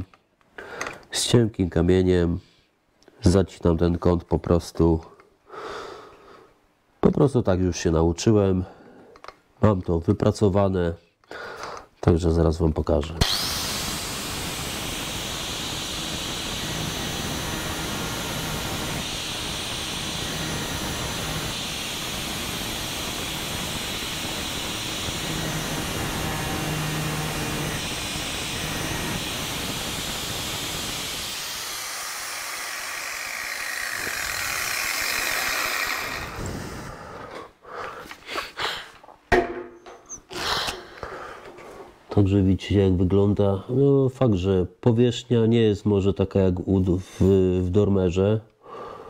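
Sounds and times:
grinder winding down whine: 0:13.2 - 0:36.9
angle grinder grinding: 0:13.2 - 0:37.4.

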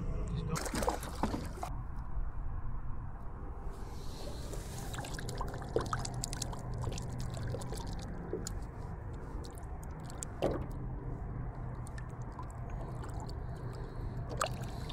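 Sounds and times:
water trickling and dripping: 0:04.9 - 0:10.8, 0:11.5 - 0:14.9.

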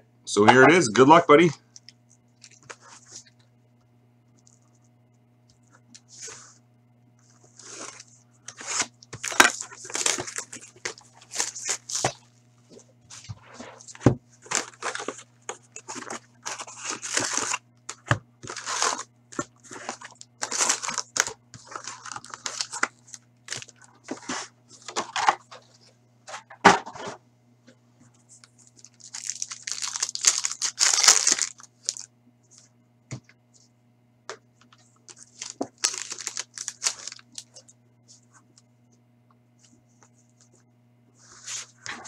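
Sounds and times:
foil packs crinkling: 0:07.4 - 0:12.4, 0:13.2 - 0:25.7, 0:28.5 - 0:32.1, 0:35.1 - 0:37.7
shrink-wrap tearing: 0:07.6 - 0:12.2, 0:14.4 - 0:23.8, 0:28.8 - 0:32.1, 0:35.1 - 0:37.5.

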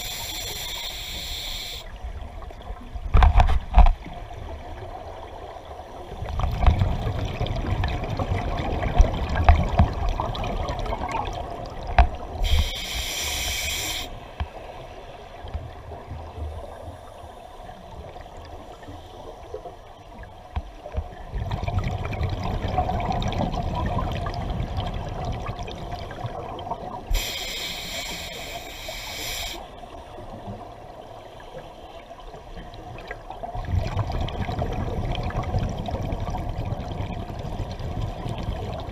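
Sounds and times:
regulator inhalation hiss: 0:00.0 - 0:01.9, 0:12.4 - 0:14.4, 0:27.1 - 0:29.8
exhaled air bubbling underwater: 0:04.0 - 0:14.8, 0:15.4 - 0:38.9.

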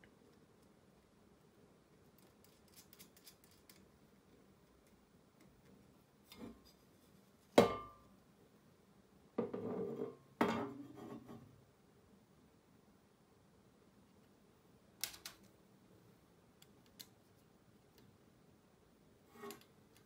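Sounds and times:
metallic knock with ring: 0:07.6 - 0:08.0.

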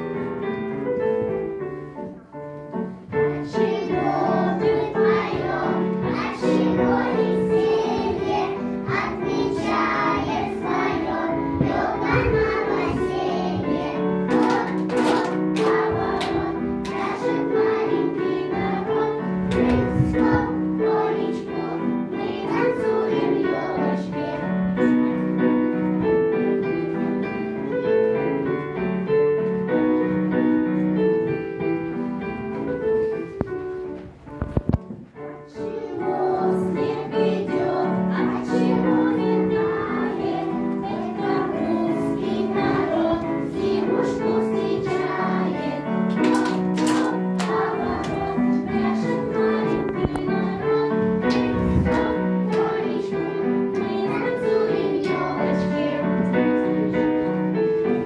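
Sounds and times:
children singing: 0:03.1 - 0:25.0, 0:35.5 - 0:58.0.

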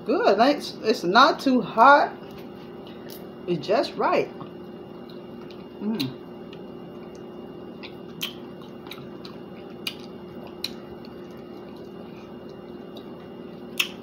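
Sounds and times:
faint steady hum: 0:00.0 - 0:14.0
chewing and lip smacking: 0:04.4 - 0:14.0
wet mouth clicks: 0:07.8 - 0:10.8, 0:13.8 - 0:14.0.

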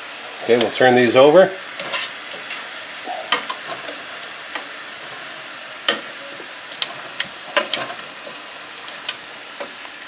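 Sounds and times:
meat sizzling in oil: 0:00.0 - 0:10.0
metal tongs clicking on pan: 0:01.8 - 0:02.6, 0:03.3 - 0:04.7.

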